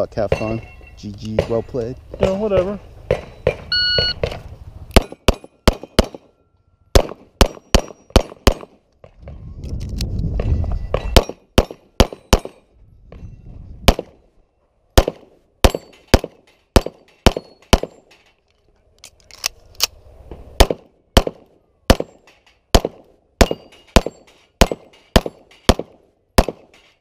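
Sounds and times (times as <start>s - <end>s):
pistol shots: 2.2s - 6.3s, 7.0s - 8.8s, 11.0s - 12.6s, 13.9s - 14.2s, 15.0s - 18.0s, 20.6s - 26.8s.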